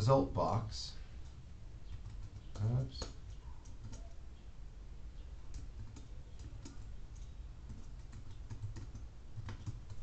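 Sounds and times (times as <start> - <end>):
computer keyboard typing: 1.9 - 4.2, 5.5 - 10.0
person speaking: 2.6 - 3.2.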